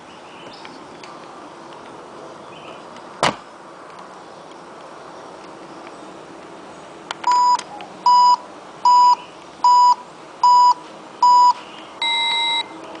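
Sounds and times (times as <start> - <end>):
oven beeper beeping: 7.3 - 12.7.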